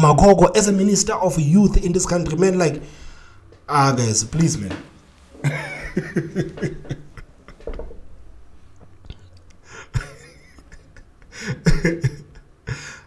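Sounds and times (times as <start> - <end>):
breathy exhales: 2.8 - 3.6
man chuckling: 5.3 - 8.2, 9.6 - 13.0.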